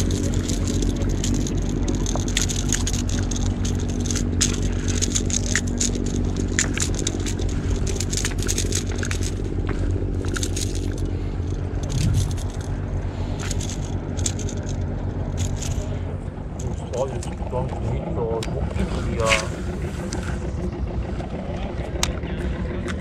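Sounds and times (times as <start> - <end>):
footsteps on loose rocks: 0.0 - 17.4
low engine hum: 0.0 - 23.0.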